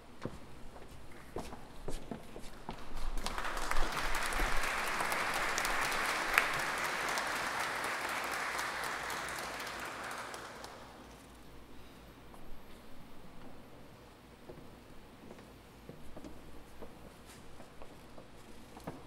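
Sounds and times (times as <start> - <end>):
audience applauding: 2.8 - 11.2.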